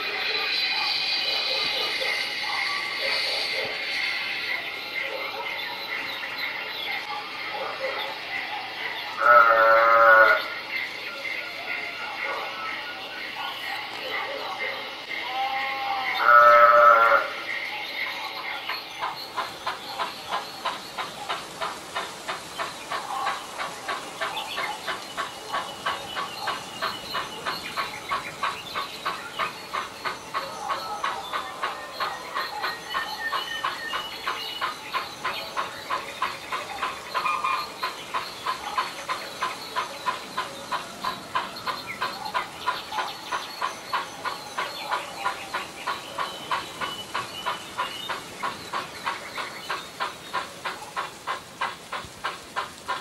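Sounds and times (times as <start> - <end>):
model steam locomotive chuffing: 0.0 - 7.5, 16.2 - 53.0.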